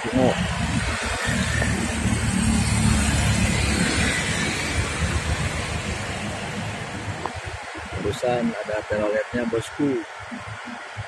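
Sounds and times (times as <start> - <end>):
truck engine approaching: 0.0 - 7.9
motorcycles passing: 0.0 - 8.4
traffic passing close: 0.0 - 8.6.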